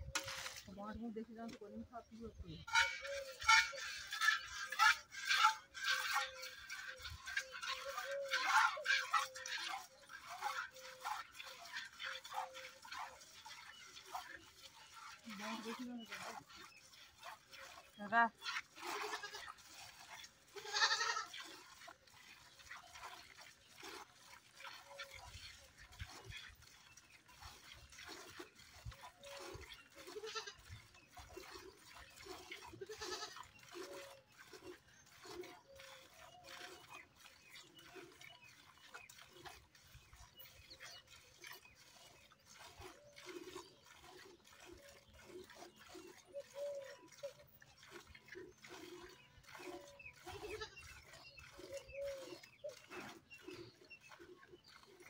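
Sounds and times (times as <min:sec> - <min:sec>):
milk squirts striking a steel pail: 0:00.0 - 0:51.2
goat bleating: 0:19.0 - 0:19.6, 0:20.6 - 0:21.3, 0:30.2 - 0:30.5, 0:32.8 - 0:33.4.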